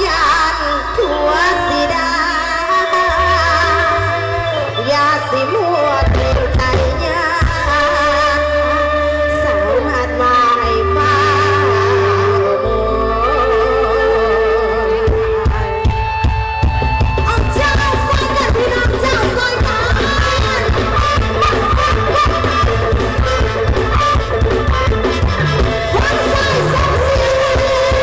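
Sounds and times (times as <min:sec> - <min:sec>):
electric guitar: 0:00.0 - 0:28.0
keyboard: 0:00.0 - 0:28.0
person singing: 0:01.0 - 0:15.9, 0:25.1 - 0:28.0
drum beat: 0:15.5 - 0:28.0.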